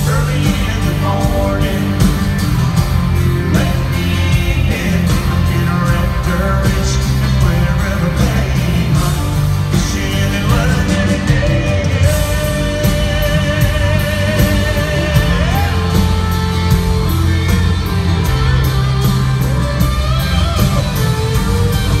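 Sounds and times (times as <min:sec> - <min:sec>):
man singing lead vocal: 0:00.0 - 0:02.5, 0:03.1 - 0:16.4
acoustic guitar: 0:00.0 - 0:22.0
keyboards: 0:00.0 - 0:22.0
steady drum beat: 0:00.0 - 0:22.0.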